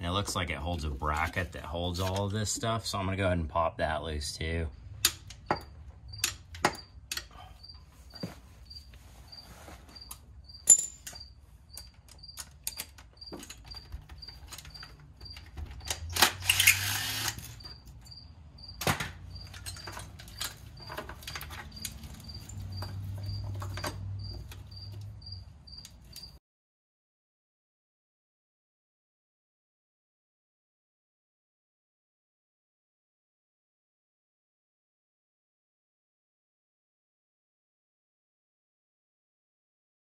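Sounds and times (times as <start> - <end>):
tools clicking and clinking: 5.0 - 7.5, 10.1 - 18.2, 18.8 - 26.4.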